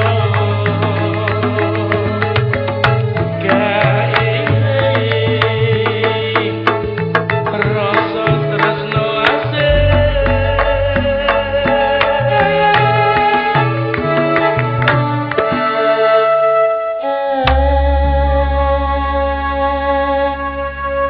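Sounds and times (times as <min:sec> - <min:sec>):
percussion beat: 0:00.0 - 0:15.7
held bass notes: 0:00.0 - 0:16.8, 0:17.4 - 0:21.0.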